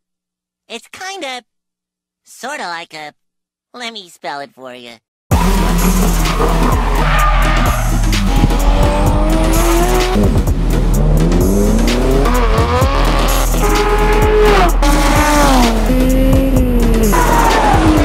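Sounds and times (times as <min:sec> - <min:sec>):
race car engines: 0:05.3 - 0:18.0.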